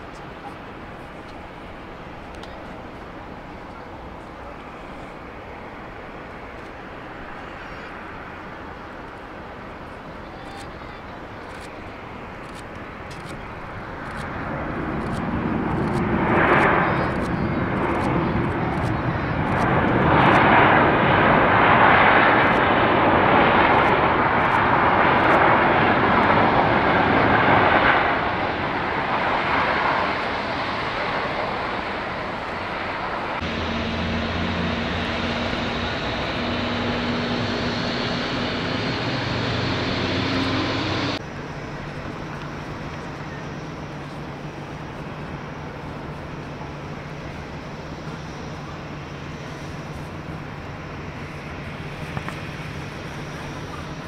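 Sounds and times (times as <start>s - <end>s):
jet engines at takeoff thrust: 0.0s - 54.0s
steady hum with low tones: 33.4s - 53.9s.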